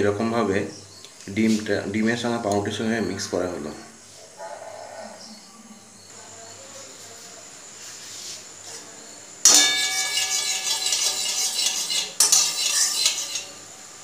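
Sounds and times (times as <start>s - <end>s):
metal spatula scraping a pan: 9.5s - 13.7s.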